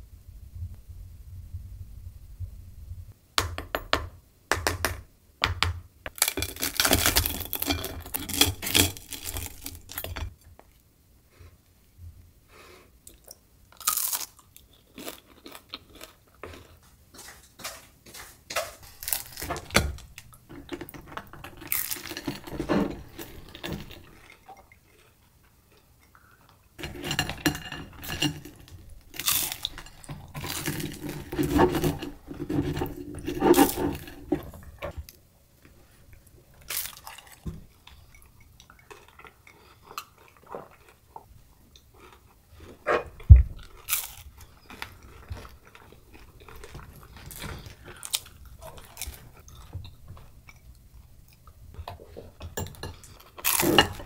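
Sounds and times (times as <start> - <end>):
rice crackers cracking and crunching: 6.1 - 10.3, 13.8 - 25.8, 26.8 - 34.2, 36.6 - 37.5, 43.7 - 49.4.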